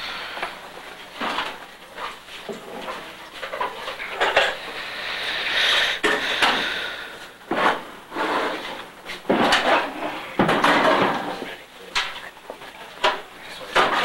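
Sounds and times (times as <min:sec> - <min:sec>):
pans knocking and scraping: 0:07.5 - 0:12.2, 0:13.0 - 0:14.0.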